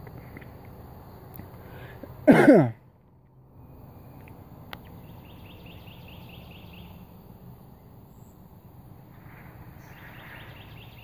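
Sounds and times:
person sneezing: 2.3s - 2.8s
faint rapid chirping: 3.2s - 11.0s.

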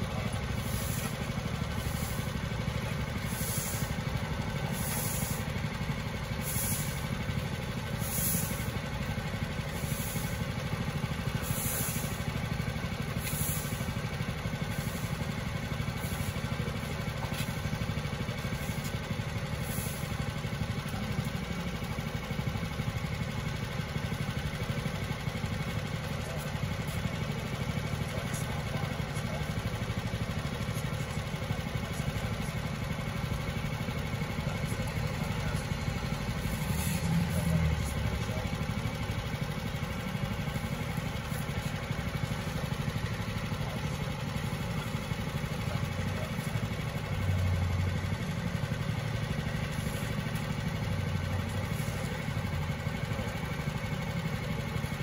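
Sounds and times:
engine idling: 0.0s - 55.0s
scraping strokes: 0.5s - 2.5s, 3.2s - 4.0s, 4.6s - 5.5s, 6.4s - 7.0s, 8.0s - 8.7s, 11.4s - 12.2s, 13.2s - 13.8s, 36.4s - 38.3s.

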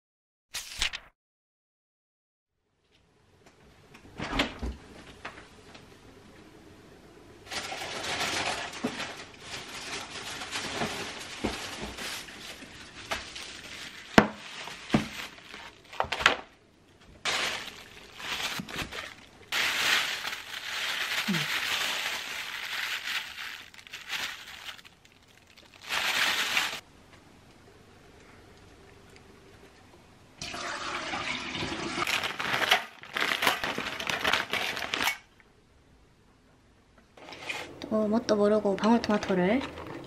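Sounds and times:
plastic bag crinkling: 7.4s - 16.4s, 17.2s - 26.8s, 32.0s - 35.3s.

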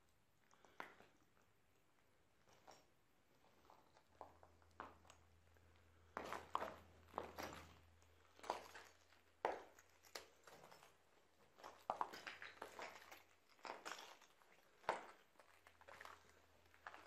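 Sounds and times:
footsteps crunching over rubble: 6.0s - 17.0s.

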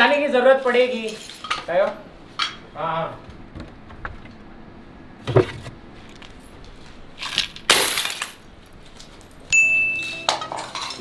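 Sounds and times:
coins clinking: 7.2s - 11.0s
high beep: 9.5s - 10.4s.

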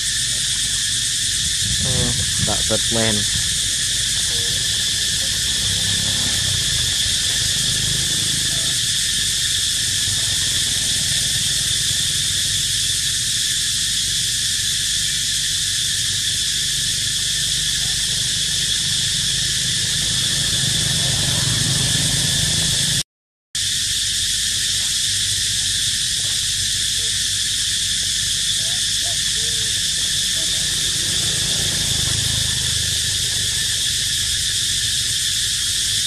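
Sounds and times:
cicadas buzzing: 0.0s - 23.0s, 23.6s - 36.0s
low rumble: 1.5s - 3.8s.

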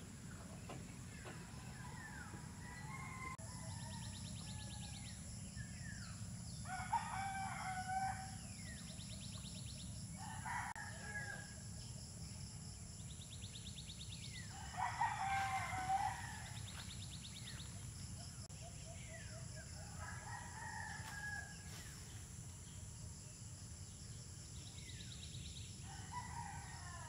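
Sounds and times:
small birds trilling and chirping: 0.1s - 27.0s
rooster crowing: 1.7s - 4.8s, 6.6s - 8.4s, 10.2s - 11.6s, 14.5s - 16.7s, 19.8s - 21.6s, 25.9s - 27.0s.

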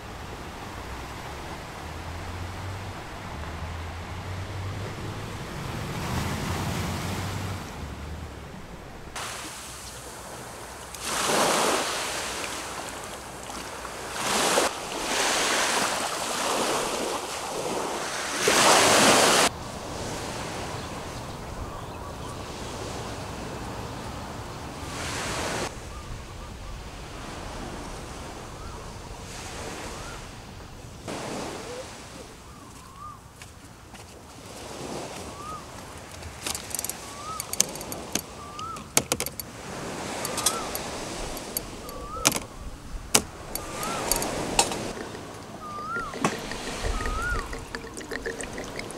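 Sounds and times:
sea waves washing onto beach: 0.0s - 21.7s, 22.4s - 26.0s, 26.7s - 48.9s
light clicks and knocks: 36.1s - 39.5s, 40.2s - 42.5s, 43.1s - 48.9s
short rising chirps: 43.5s - 48.9s.

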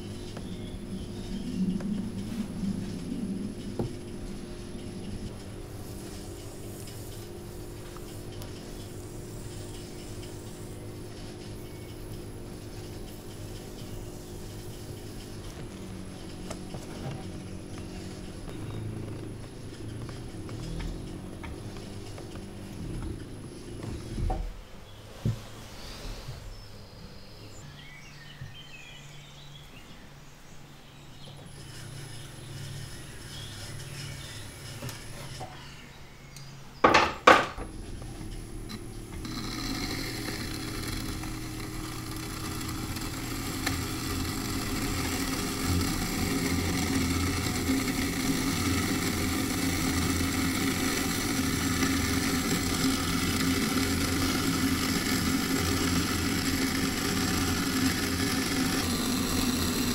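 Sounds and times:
potter's wheel humming: 0.0s - 25.7s, 31.4s - 36.0s, 36.8s - 59.9s
sharp knocks: 36.9s - 37.6s.

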